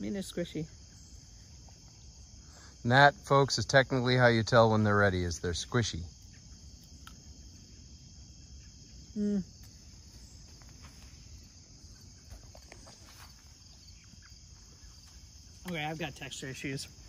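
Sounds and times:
crickets chirping: 0.0s - 17.0s
person humming: 9.2s - 9.5s.

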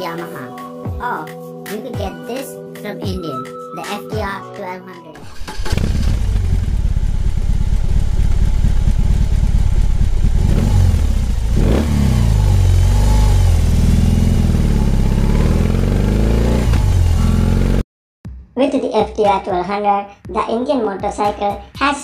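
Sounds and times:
motorcycle engine revving: 5.2s - 17.8s.

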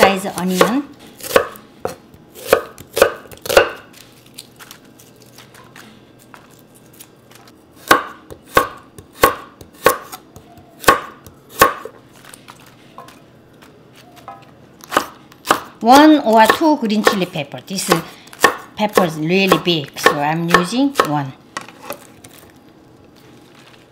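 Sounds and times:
knife chopping on wooden board: 0.5s - 3.8s, 7.8s - 12.0s, 14.8s - 15.7s, 16.4s - 21.2s.

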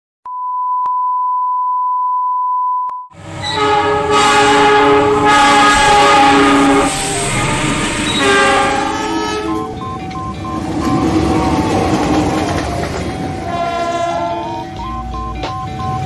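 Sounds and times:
high test-tone beep: 0.3s - 3.1s, 9.1s - 12.0s, 14.4s - 16.0s
passing train rumble: 3.2s - 16.0s
locomotive horn blasts: 3.4s - 9.8s, 13.4s - 14.8s.

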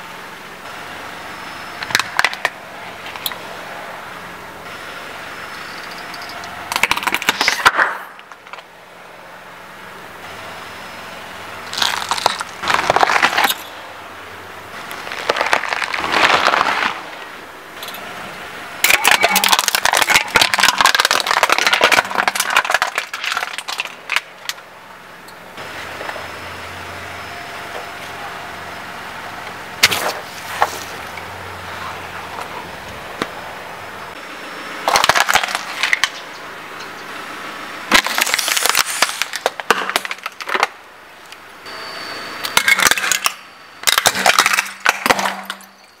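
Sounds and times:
plastic pieces cracking and snapping: 6.7s - 8.6s, 11.7s - 13.6s, 14.9s - 17.1s, 18.8s - 24.6s, 34.9s - 36.2s, 37.9s - 40.8s, 42.6s - 45.7s
aluminium cans crumpling: 18.9s - 24.3s.

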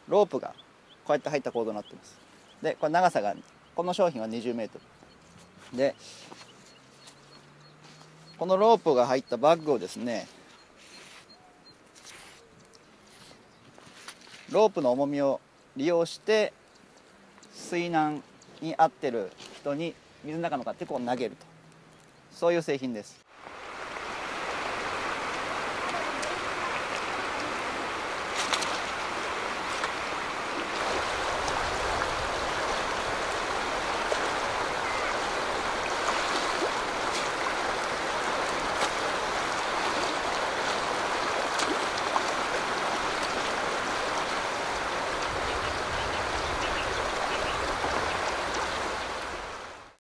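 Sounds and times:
river rapids rushing over stones: 23.4s - 49.9s.

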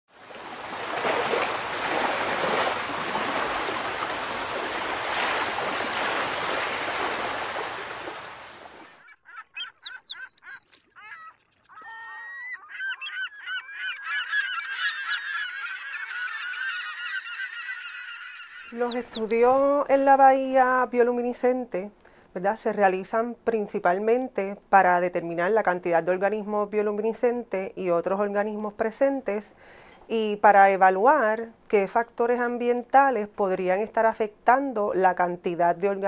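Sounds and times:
flock of birds honking and chirping: 8.7s - 19.3s.

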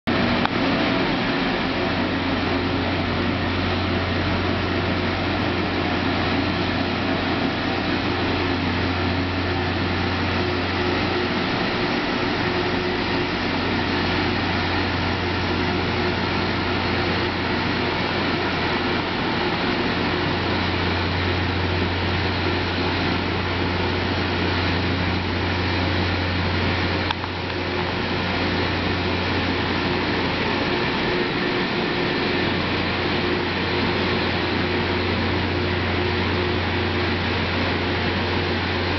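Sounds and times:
low drone: 0.1s - 38.9s
rail grinding noise: 0.1s - 38.9s.

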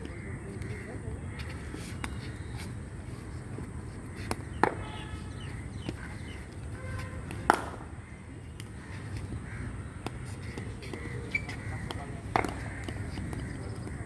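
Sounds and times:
cricket ball knocks: 7.3s - 7.8s, 11.8s - 13.5s
crows cawing: 8.8s - 13.6s.

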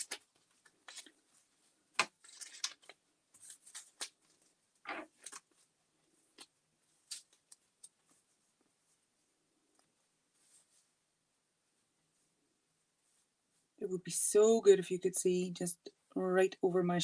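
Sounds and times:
paper rustling: 0.0s - 9.0s.

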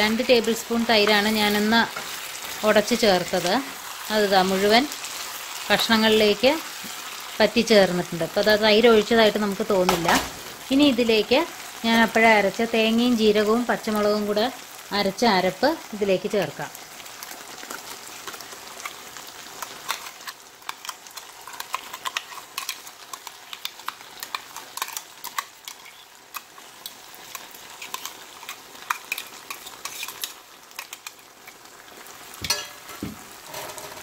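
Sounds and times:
vegetables sizzling in a pan: 0.0s - 34.0s
metal spoon scraping steel bowl: 29.1s - 30.3s.

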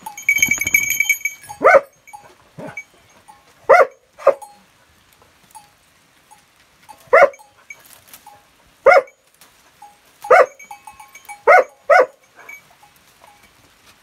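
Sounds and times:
dog barking: 1.6s - 2.0s, 3.7s - 4.4s, 7.1s - 7.4s, 8.8s - 9.2s, 10.3s - 10.6s, 11.4s - 12.6s.

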